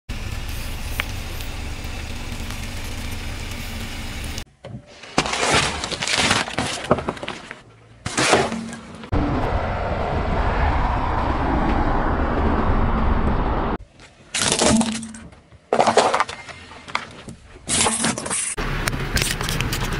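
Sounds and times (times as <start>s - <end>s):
outdoor rumble: 0.1s - 13.9s, 14.6s - 19.9s.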